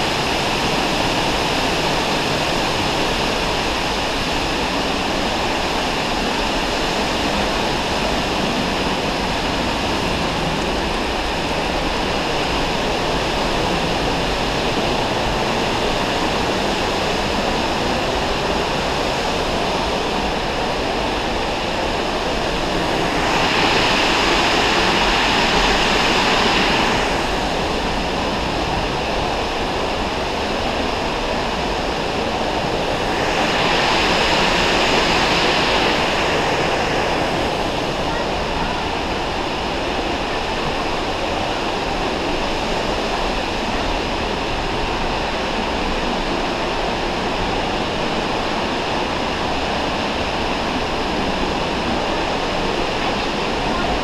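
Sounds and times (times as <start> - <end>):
waterfall rushing: 0.0 - 54.0.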